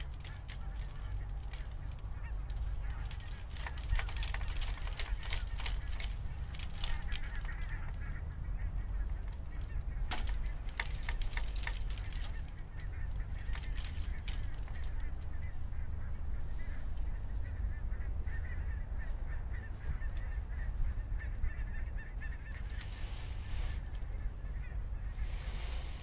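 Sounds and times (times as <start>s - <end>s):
faint clicks: 0.0s - 8.1s, 9.0s - 17.1s, 22.5s - 24.2s
bird calls: 0.0s - 26.0s
wind on microphone: 0.0s - 26.0s.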